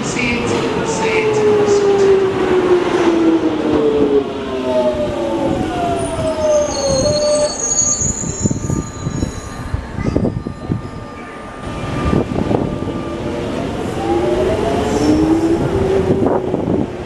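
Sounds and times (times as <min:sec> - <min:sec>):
high wheel squeals: 0:06.4 - 0:11.4.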